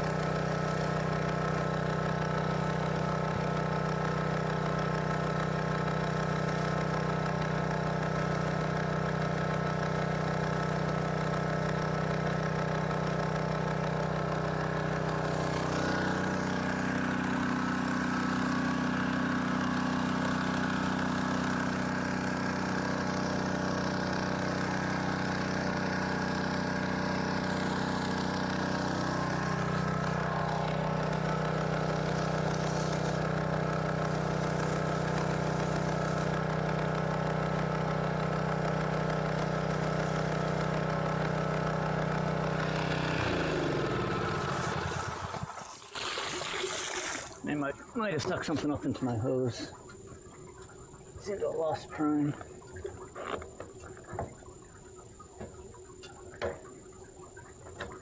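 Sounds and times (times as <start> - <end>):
small gasoline pump engine running: 0.0 - 58.0.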